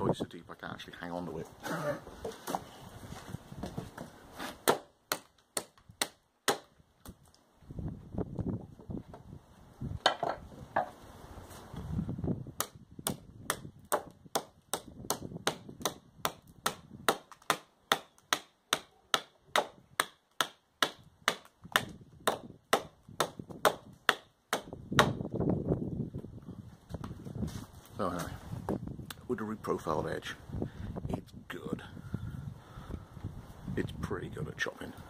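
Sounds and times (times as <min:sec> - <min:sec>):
knife chopping wood: 0:03.6 - 0:07.2, 0:12.6 - 0:25.3.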